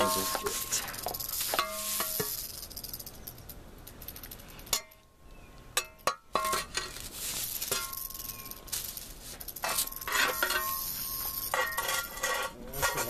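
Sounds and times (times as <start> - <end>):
shovel scraping on concrete: 0.0 - 2.6, 6.4 - 13.0
short metallic rings: 0.0 - 5.1, 5.8 - 13.0.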